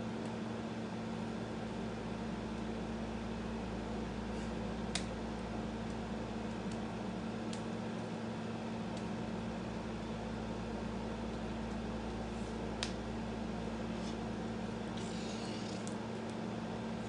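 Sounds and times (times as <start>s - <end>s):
air conditioner hum and hiss: 0.0s - 17.0s.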